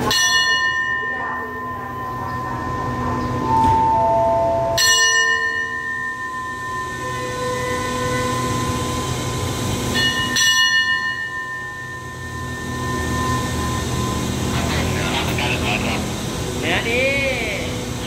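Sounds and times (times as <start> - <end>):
metal bell ringing: 0.0 - 7.8, 9.9 - 14.2.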